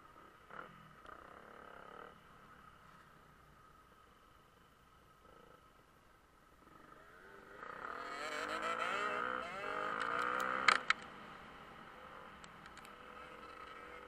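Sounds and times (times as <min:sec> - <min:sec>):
dirt bike engine accelerating: 0:06.6 - 0:14.0.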